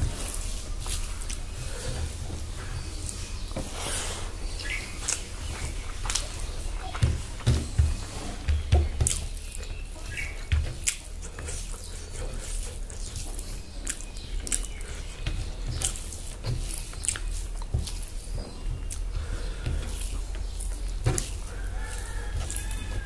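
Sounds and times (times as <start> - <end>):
fingers squishing rice: 0.0 - 23.0
wet chewing and mouth smacks: 0.1 - 3.6, 4.4 - 7.8, 8.6 - 23.0
low thuds: 4.9 - 11.4.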